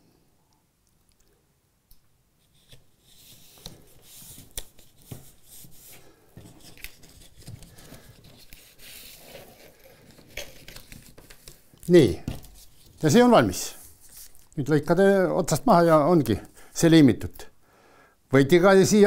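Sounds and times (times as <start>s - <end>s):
cardboard rustling and scraping: 2.5s - 14.4s.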